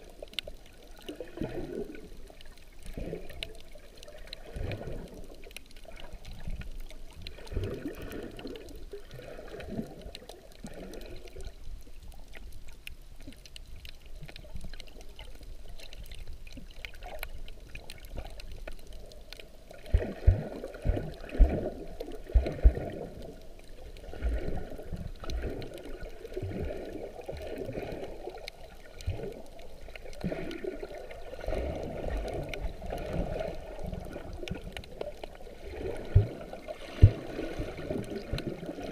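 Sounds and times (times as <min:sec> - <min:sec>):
underwater water sloshing: 0:00.0 - 0:38.9.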